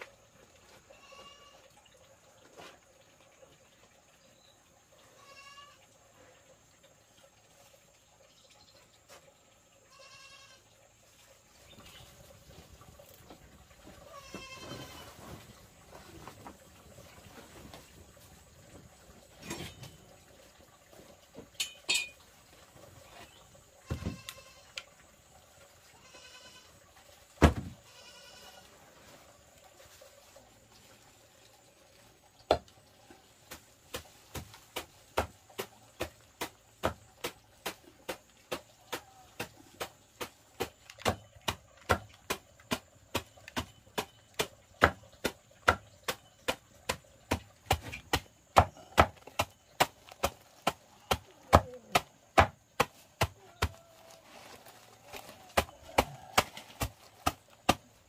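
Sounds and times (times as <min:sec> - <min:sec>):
animal bleats: 0:00.7 - 0:01.8, 0:05.1 - 0:05.9, 0:09.9 - 0:10.7, 0:13.9 - 0:15.2, 0:23.8 - 0:24.8, 0:25.9 - 0:26.8, 0:27.8 - 0:28.8.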